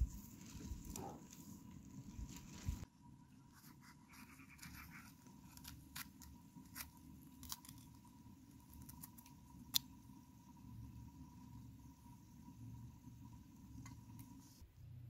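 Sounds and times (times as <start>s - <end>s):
knife cutting bell pepper: 3.6s - 8.0s.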